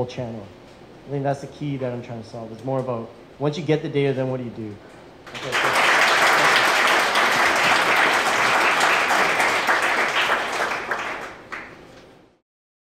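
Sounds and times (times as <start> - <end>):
audience applauding: 5.3 - 11.8.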